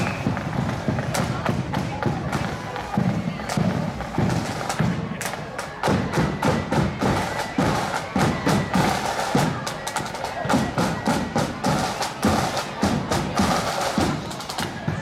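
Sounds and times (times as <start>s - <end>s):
bass drum beats: 0.0s - 5.2s.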